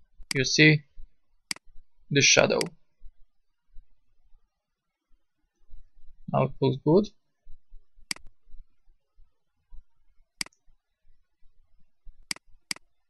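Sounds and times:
computer mouse clicking: 1.5 - 1.7, 2.6 - 2.8, 8.1 - 8.3, 10.4 - 10.6, 12.2 - 12.9.

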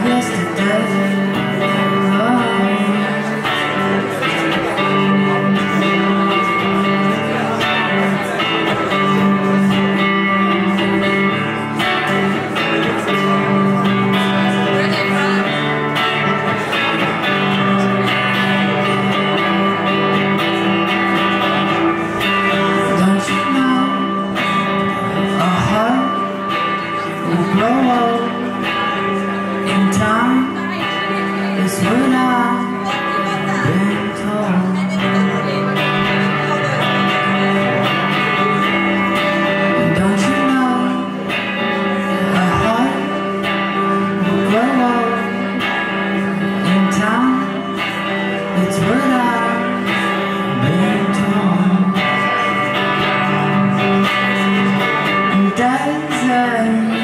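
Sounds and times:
electric guitar chords: 0.0 - 57.0.

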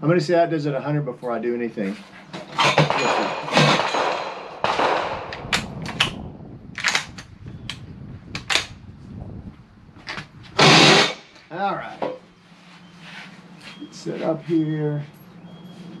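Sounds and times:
gunshot blast: 2.8 - 6.2, 10.6 - 11.3.

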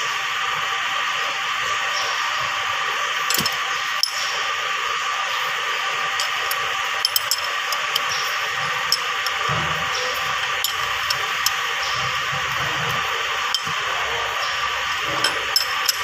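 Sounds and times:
metallic clicks of bolts: 3.3 - 4.2, 6.2 - 8.2, 15.2 - 16.0.

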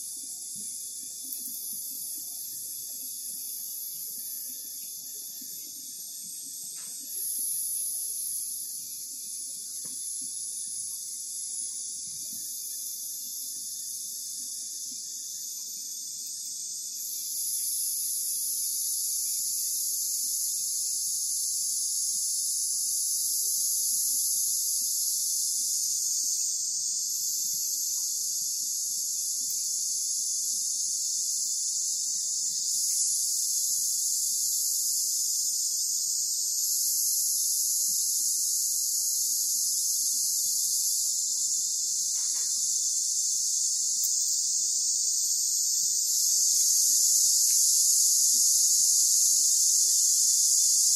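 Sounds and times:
insect chorus drone: 0.0 - 50.9.

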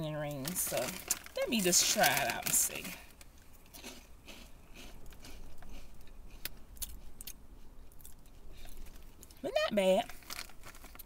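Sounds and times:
person chewing crunchy snacks: 0.8 - 9.3.

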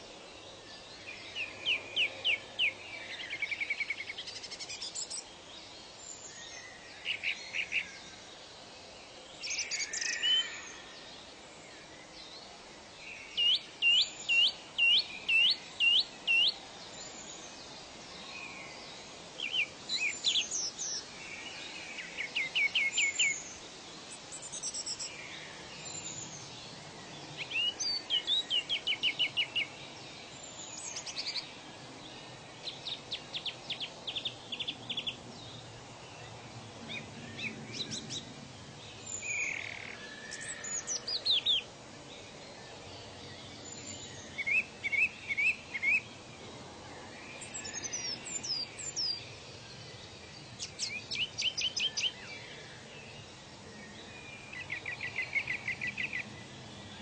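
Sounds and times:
steady background hiss: 0.0 - 57.0
birds chirping: 13.0 - 57.0.

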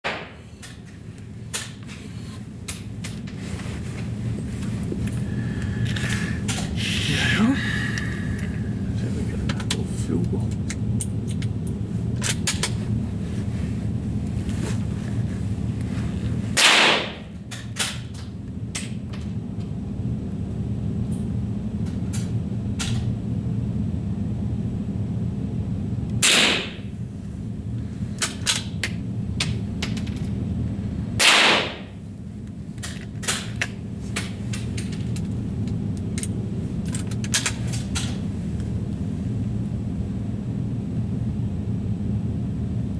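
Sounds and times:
steady low hum: 0.0 - 42.9
rifle shots: 16.6 - 17.2, 26.2 - 26.8, 31.2 - 31.9.

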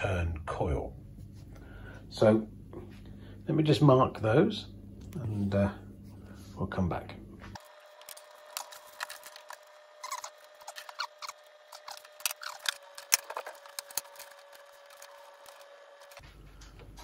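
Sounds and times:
faint steady hum: 0.0 - 17.0
tape squeaking off roll: 8.1 - 16.2.

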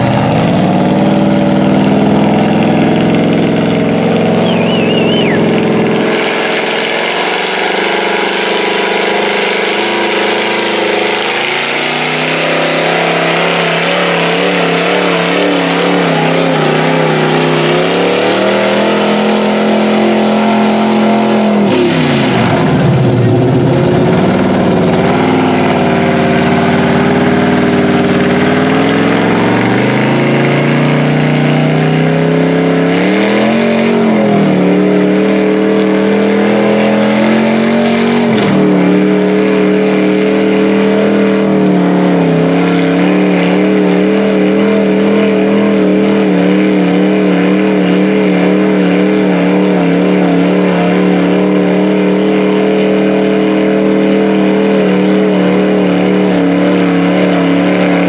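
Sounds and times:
tires churning through mud: 0.0 - 58.0
truck engine revving under load: 0.0 - 58.0.

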